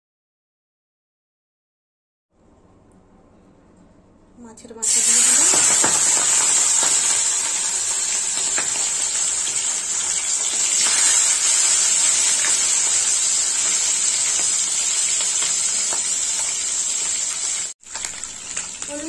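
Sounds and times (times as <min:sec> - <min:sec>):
fish frying in hot oil: 0:04.8 - 0:19.0
oil crackling: 0:04.8 - 0:19.0.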